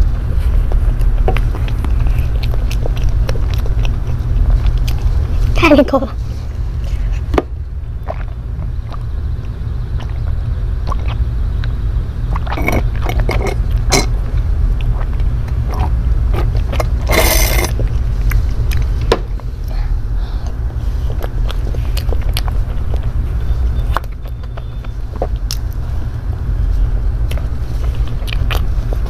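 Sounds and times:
wet swallowing clicks: 8.0s - 19.5s
noisy slurp through straw: 12.3s - 14.0s, 15.0s - 17.8s
sipping through a straw: 15.8s - 17.8s.

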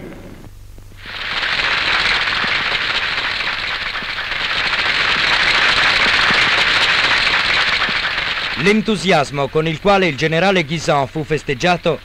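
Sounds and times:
applause: 1.0s - 12.0s.

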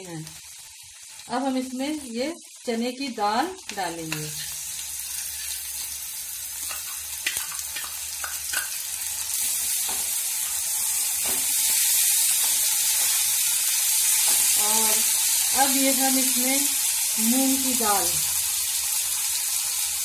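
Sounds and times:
food sizzling in oil: 0.0s - 20.0s
metal spoon scraping a pan: 4.0s - 6.0s.

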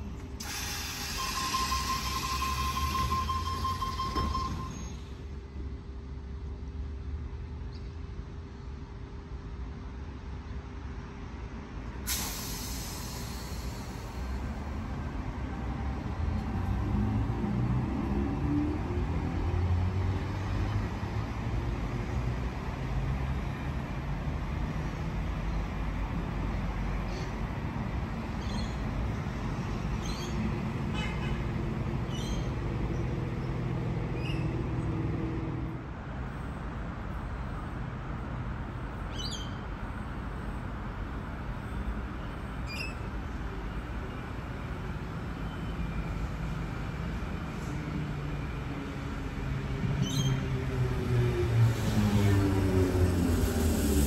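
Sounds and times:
vehicles rumbling: 12.0s - 54.0s.

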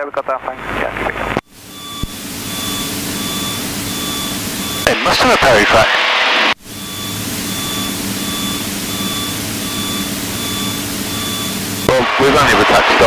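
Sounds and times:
aircraft piston engine running: 1.5s - 4.9s, 6.7s - 13.0s
short electronic beeps: 1.7s - 5.1s, 6.7s - 12.0s.

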